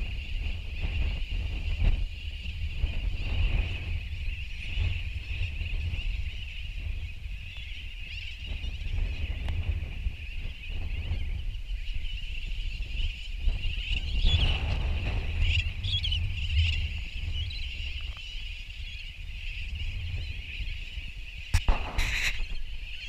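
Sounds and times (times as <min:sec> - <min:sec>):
seabirds calling in a colony: 0:00.0 - 0:23.0
wind rumbling on microphone: 0:00.0 - 0:23.0
sharp click: 0:21.5 - 0:22.6
short burst of noise: 0:21.6 - 0:22.7.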